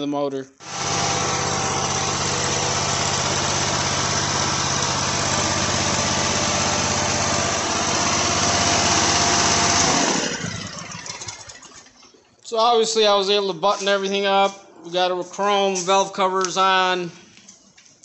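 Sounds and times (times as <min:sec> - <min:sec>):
mower engine running: 0:00.6 - 0:11.9.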